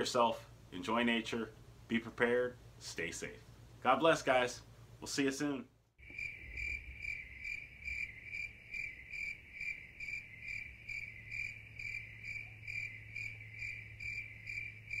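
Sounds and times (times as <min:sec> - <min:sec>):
faint low hum: 0:00.0 - 0:15.0
cricket chirping: 0:06.0 - 0:15.0.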